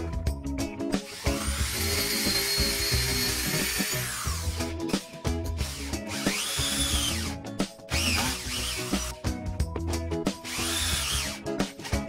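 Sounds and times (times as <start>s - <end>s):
background music with steady beat: 0.0s - 12.0s
power tool motor whining: 1.1s - 4.6s, 5.6s - 9.1s, 10.4s - 11.4s.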